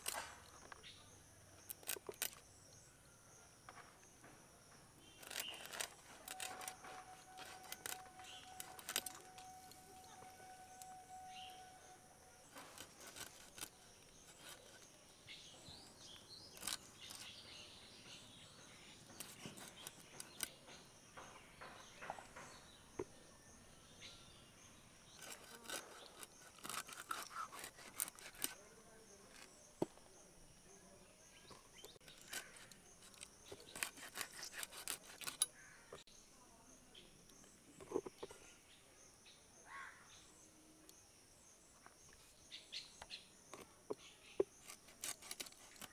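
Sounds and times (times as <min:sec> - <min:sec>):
blade cutting fish: 0:05.2 - 0:09.4, 0:25.2 - 0:28.6, 0:32.2 - 0:35.4
faint high-pitched drone: 0:06.4 - 0:12.5.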